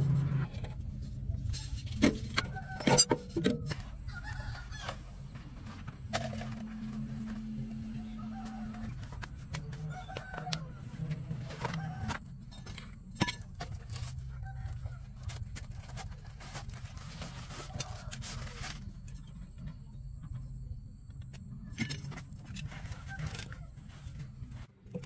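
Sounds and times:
steady low hum: 0.0s - 17.6s
metal tools clinking: 2.8s - 3.8s.

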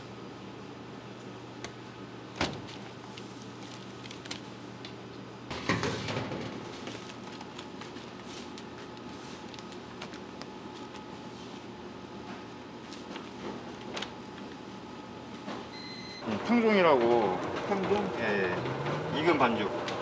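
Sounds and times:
steady machine hum: 0.0s - 20.0s.

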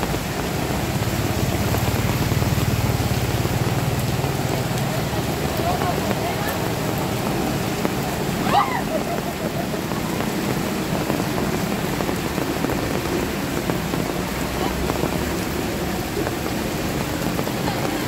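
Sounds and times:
heavy rain on standing water: 0.0s - 18.0s.

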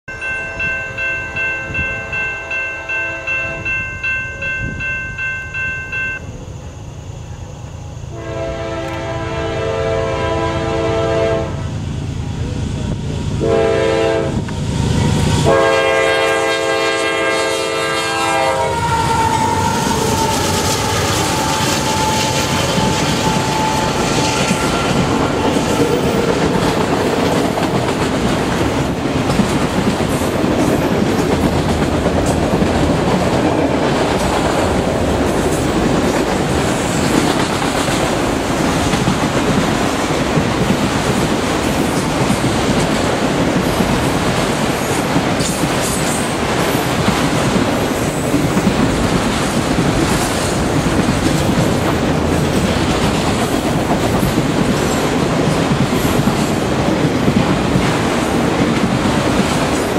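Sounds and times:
crossing bell ringing: 0.0s - 6.4s
rail cars rumbling and clacking: 0.1s - 59.9s
locomotive horn blasts: 8.1s - 11.8s, 13.4s - 14.4s, 15.4s - 26.2s
locomotive engine passing: 10.2s - 45.4s.

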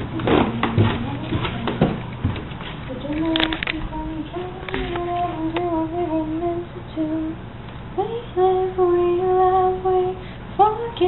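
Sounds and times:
woman singing long held notes: 2.9s - 7.4s, 8.0s - 11.0s.

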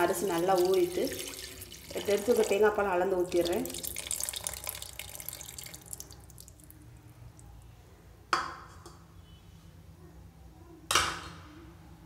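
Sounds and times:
liquid pouring into a pot: 0.0s - 6.8s
drips: 0.0s - 7.5s.

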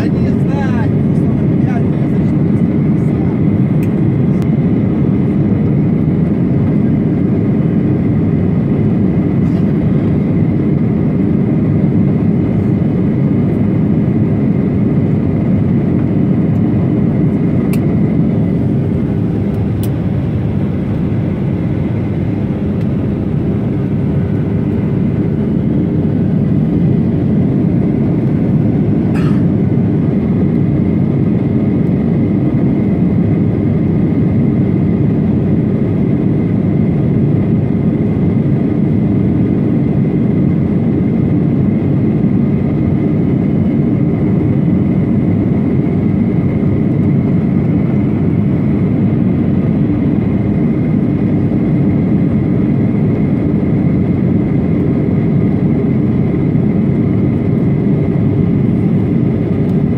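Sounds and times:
airplane cabin engine roar: 0.0s - 59.9s.

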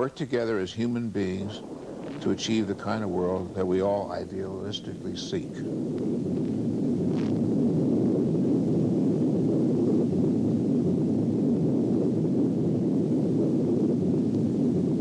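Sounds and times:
explosion rumble: 0.0s - 10.1s.

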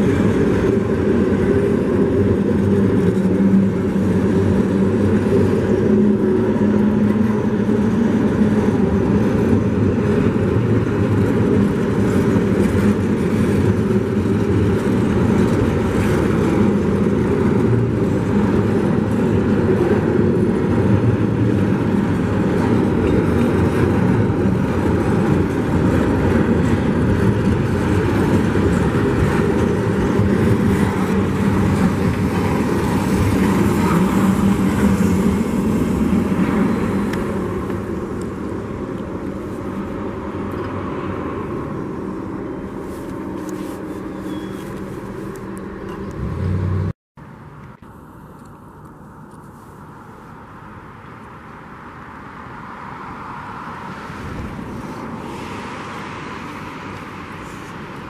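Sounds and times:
train wheels rumbling on rail: 0.0s - 46.9s.

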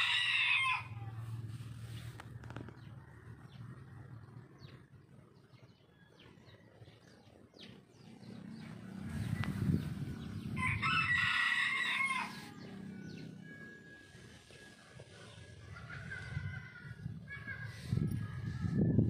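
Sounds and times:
rooster crowing: 0.0s - 1.1s, 10.5s - 13.6s.

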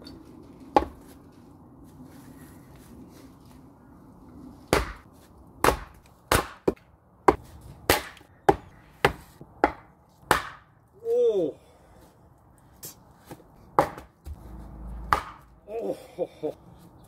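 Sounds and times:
axe chopping wood: 0.7s - 1.0s, 4.7s - 10.7s, 13.3s - 14.4s, 15.0s - 15.5s.

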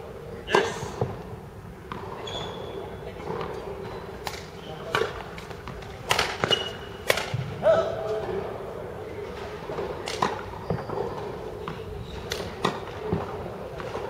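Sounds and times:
sneaker squeak on court floor: 2.1s - 3.0s, 6.4s - 7.0s, 10.6s - 12.3s
racket striking shuttlecock: 4.2s - 7.4s.

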